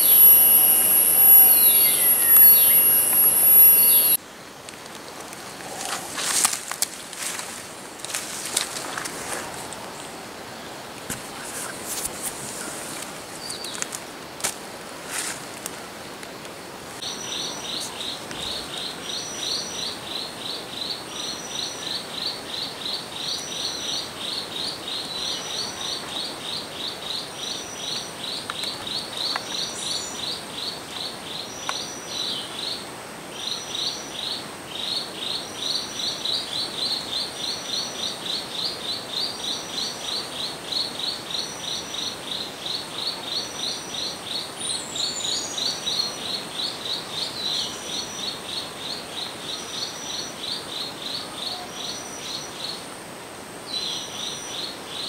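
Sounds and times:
falling whistle: 0.0 - 4.2
insects calling in chorus: 0.0 - 4.2, 17.0 - 53.0
steady high whine: 0.0 - 6.4.

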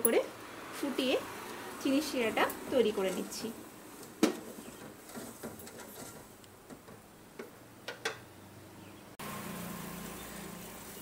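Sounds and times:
wooden spatula scraping metal pot: 2.7 - 6.9.

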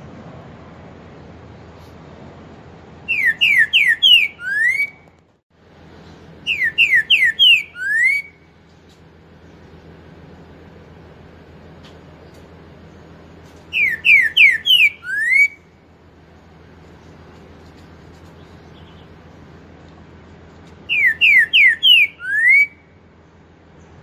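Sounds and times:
bird whistling song: 3.1 - 5.2, 6.4 - 8.6, 13.7 - 15.8, 18.4 - 19.2, 20.8 - 23.0.

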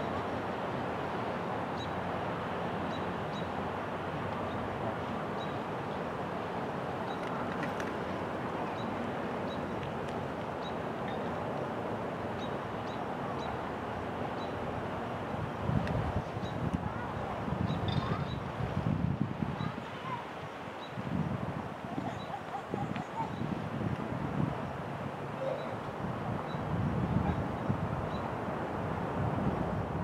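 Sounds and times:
wind buffeting microphone: 14.3 - 30.0.

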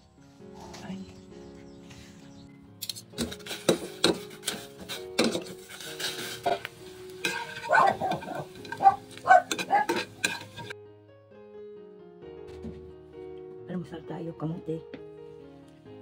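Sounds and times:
light sizzle: 2.8 - 10.8
metal utensil scraping frying pan: 2.8 - 10.8.

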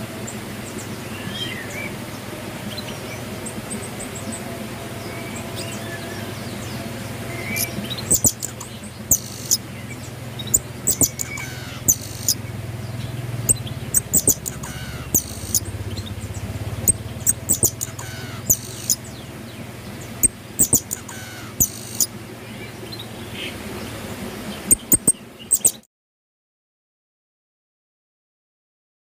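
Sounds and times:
low steady hum: 0.0 - 25.4
high thin bird chirps: 7.5 - 9.6, 10.4 - 12.4, 13.4 - 16.1, 16.9 - 19.2, 20.2 - 22.1, 24.7 - 25.8.

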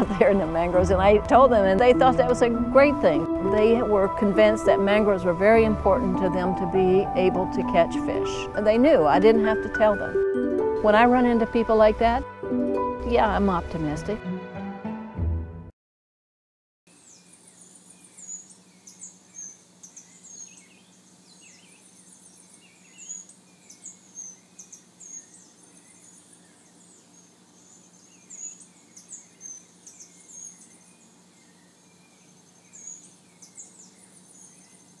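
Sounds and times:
steady low hum: 0.0 - 10.0
small birds chirping: 16.9 - 35.0.

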